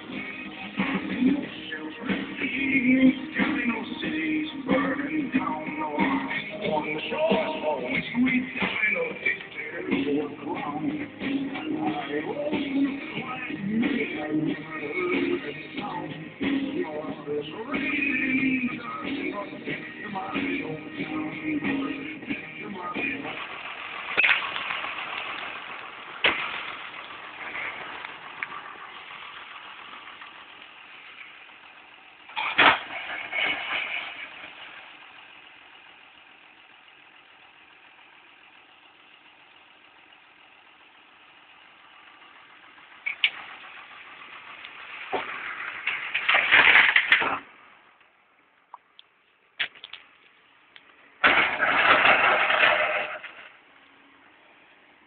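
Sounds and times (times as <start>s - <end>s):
tractor diesel engine running: 0.0s - 55.0s
stone crashing into steel trailer: 24.1s - 25.5s, 26.1s - 28.0s, 32.3s - 34.7s, 45.1s - 47.5s, 51.2s - 53.6s
loose stone crunching: 51.2s - 53.6s.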